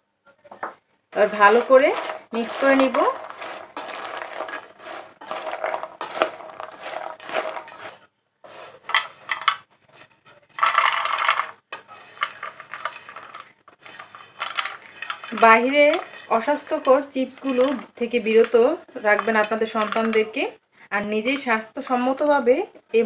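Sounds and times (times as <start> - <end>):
spoon scraping bowl: 1.1 - 20.4
chips clattering onto plate: 1.2 - 8.0, 8.7 - 20.3
fried chips clattering in steel bowl: 1.2 - 8.0, 10.5 - 20.4.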